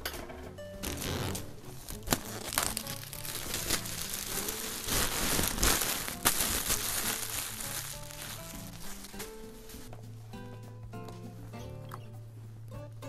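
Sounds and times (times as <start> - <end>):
paper crinkling and rustling: 0.8 - 9.9.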